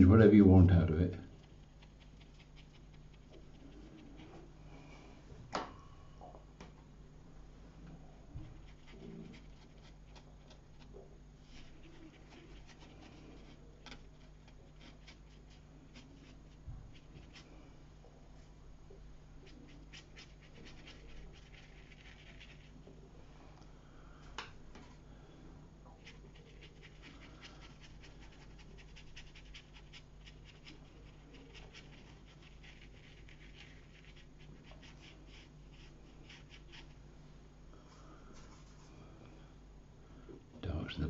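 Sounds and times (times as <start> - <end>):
low steady hum: 0.0 - 41.0
brush scratching on paper: 1.4 - 4.5, 8.4 - 17.6, 19.4 - 22.8, 26.0 - 37.0.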